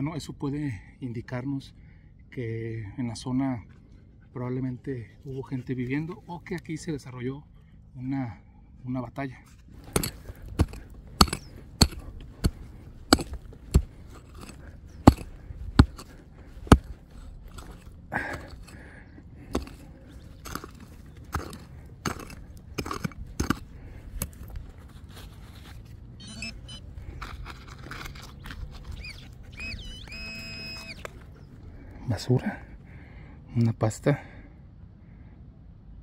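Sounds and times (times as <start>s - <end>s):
digging tool striking hard ground: 9.7s - 24.6s.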